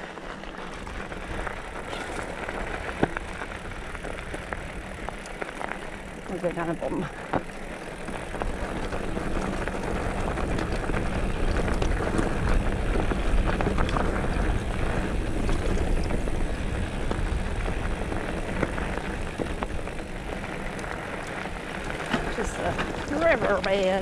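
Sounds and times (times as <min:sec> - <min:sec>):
bike clicks and rattles: 0:00.0 - 0:24.0
tyres crunching over gravel: 0:00.0 - 0:24.0
wind rumbling over microphone: 0:00.0 - 0:24.0.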